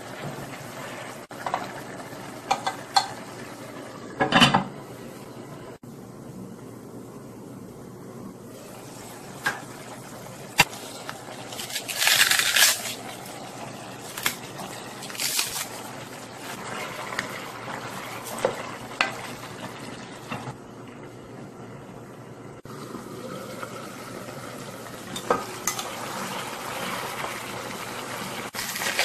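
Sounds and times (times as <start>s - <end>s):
cabbage leaves tearing: 11.5s - 13.1s, 15.0s - 15.8s.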